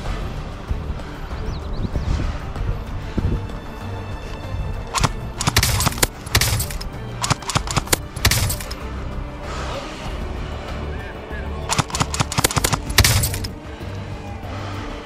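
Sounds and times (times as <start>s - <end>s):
music track: 0.0s - 15.0s
airsoft rifle shots: 5.0s - 8.8s, 11.7s - 13.5s.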